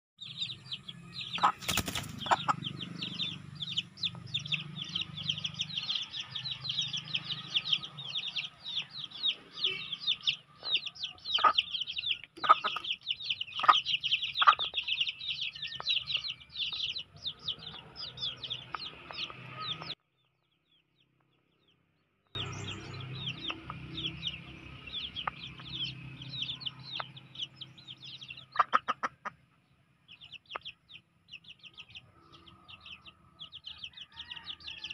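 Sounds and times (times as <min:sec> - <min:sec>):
chicks peeping: 0:00.2 - 0:20.8, 0:22.4 - 0:34.9
hen murmuring: 0:01.3 - 0:03.3, 0:10.7 - 0:14.8.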